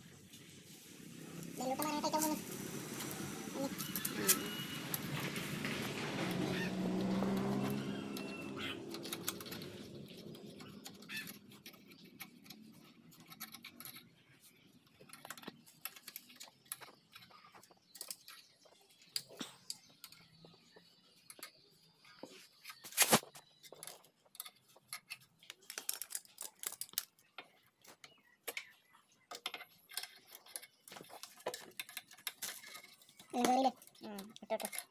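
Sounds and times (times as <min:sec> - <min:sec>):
low engine hum: 0:01.2 - 0:10.9.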